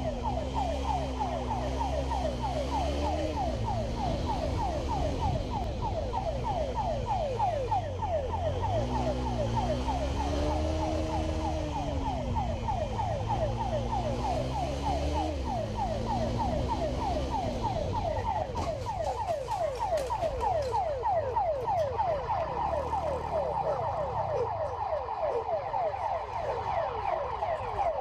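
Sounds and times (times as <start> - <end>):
motorcycle siren yelping: 0.0 - 28.0
motorcycle engine revving: 8.6 - 18.6.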